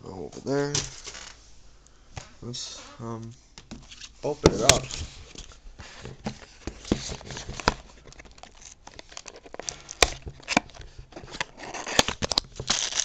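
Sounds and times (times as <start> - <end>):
packaging crinkling and rustling: 4.2 - 13.0.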